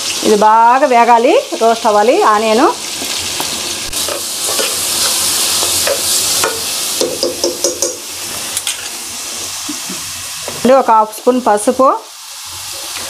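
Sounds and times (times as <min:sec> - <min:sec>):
onions sizzling in hot oil: 0:00.0 - 0:13.0
utensil knocking and scraping pan: 0:04.0 - 0:08.0.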